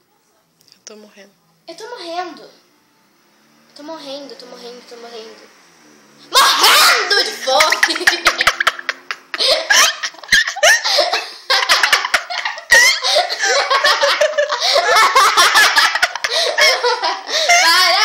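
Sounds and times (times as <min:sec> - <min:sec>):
girl laughing hard: 0:06.3 - 0:18.0.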